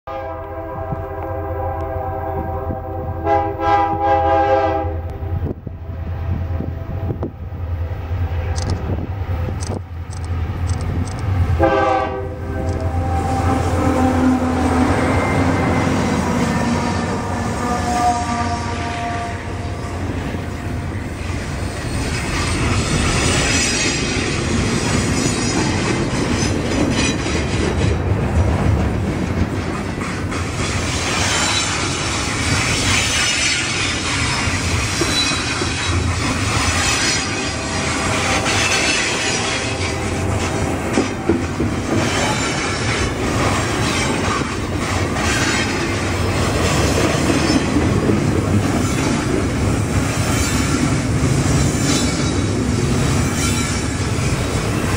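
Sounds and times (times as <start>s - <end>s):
train wheels rumbling on rails: 0.3s - 54.9s
high wheel squeal: 31.1s - 40.4s.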